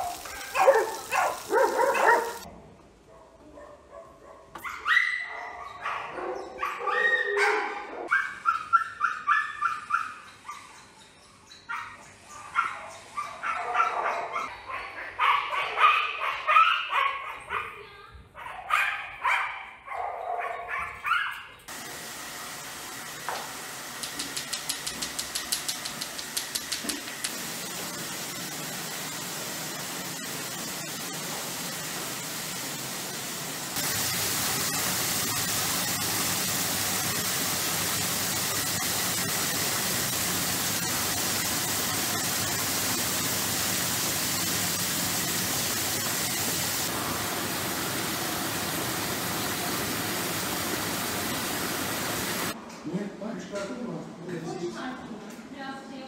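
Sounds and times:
dog barking: 0.0 - 2.5, 3.1 - 10.6, 11.7 - 17.8, 18.4 - 21.6
water hissing in a bath: 0.0 - 2.5, 21.7 - 52.6.

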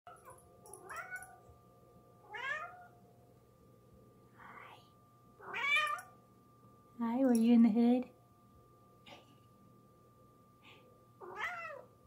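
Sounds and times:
cat meowing: 2.3 - 2.9, 5.4 - 6.0, 11.2 - 11.9.

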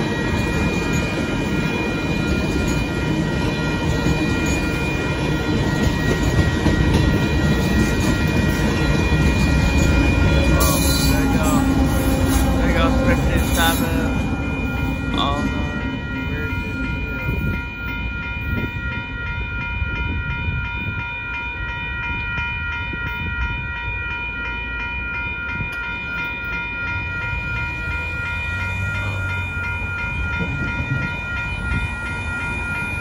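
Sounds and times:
crossing warning bell ringing: 0.0 - 33.0
train rumbling: 0.0 - 33.0.

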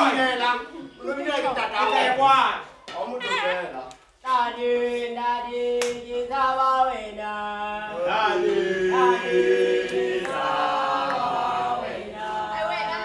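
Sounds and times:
group singing unaccompanied: 4.2 - 13.0.

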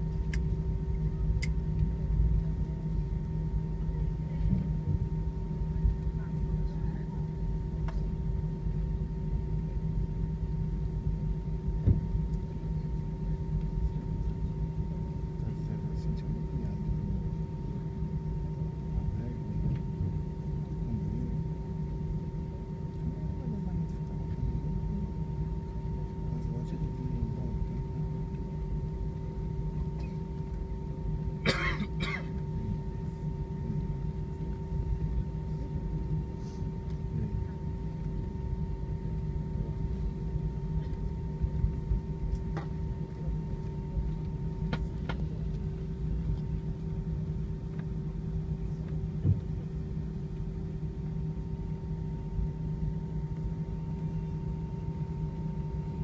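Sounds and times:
aircraft cabin rumble: 0.0 - 56.0
person coughing: 31.4 - 32.4.

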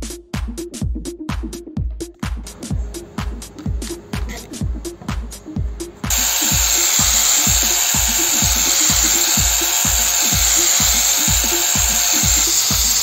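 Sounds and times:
background music with steady beat: 0.0 - 13.0
angle grinder grinding metal: 6.1 - 13.0.

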